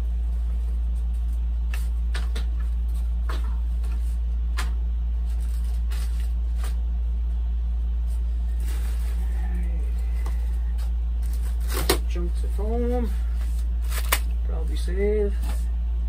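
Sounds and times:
steady low hum: 0:00.0 - 0:16.0
foam parts tapping and rustling: 0:00.5 - 0:06.9, 0:08.5 - 0:14.3.

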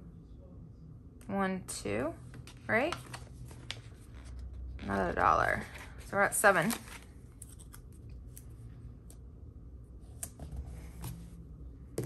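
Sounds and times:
paper handling rustles: 0:02.3 - 0:08.4.

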